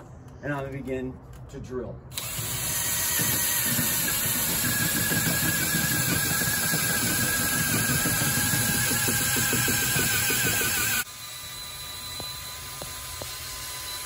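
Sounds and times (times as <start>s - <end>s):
drill boring into wood: 2.1s - 14.0s
wavering whine: 4.9s - 14.0s.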